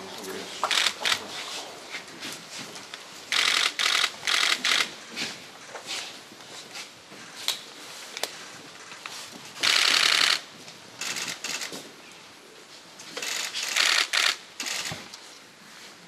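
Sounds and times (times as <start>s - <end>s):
camera shutters firing in bursts: 0.6s - 1.3s, 3.3s - 5.0s, 9.6s - 11.8s, 13.2s - 15.1s.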